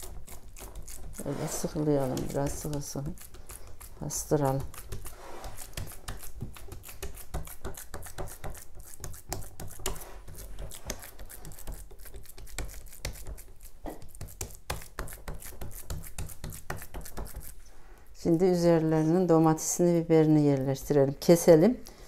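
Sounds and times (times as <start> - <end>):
hand patting minced meat: 1.8 - 17.6.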